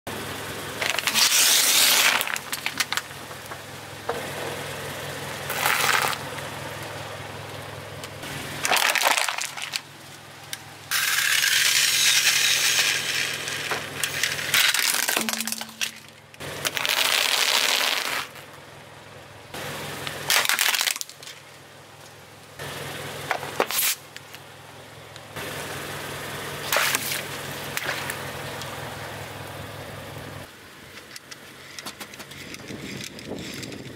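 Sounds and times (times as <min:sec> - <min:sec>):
car engine humming: 0:00.0 - 0:33.9
tyres crushing objects: 0:00.8 - 0:03.5, 0:05.5 - 0:06.3, 0:08.6 - 0:09.9, 0:10.9 - 0:18.5, 0:20.2 - 0:21.5.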